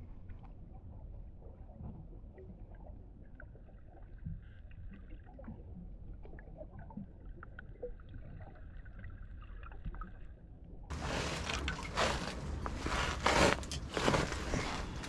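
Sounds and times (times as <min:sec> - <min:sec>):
water lapping: 0:10.9 - 0:15.0.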